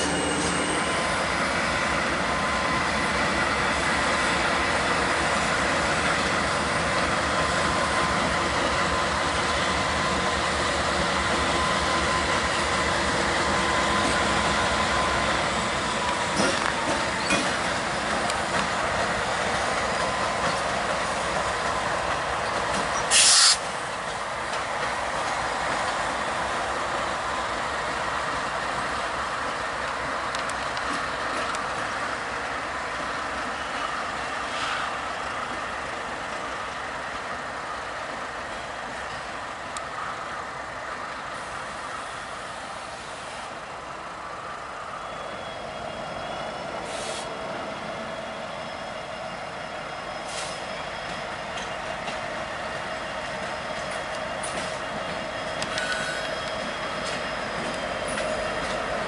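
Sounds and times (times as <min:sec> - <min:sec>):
diesel locomotives passing: 0:00.0 - 0:59.0
air hiss: 0:23.0 - 0:23.8, 0:46.8 - 0:47.4.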